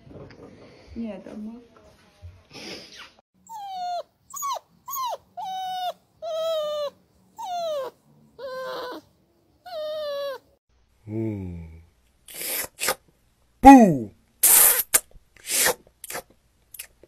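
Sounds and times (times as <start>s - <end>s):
small dog whining: 3.4s - 10.5s.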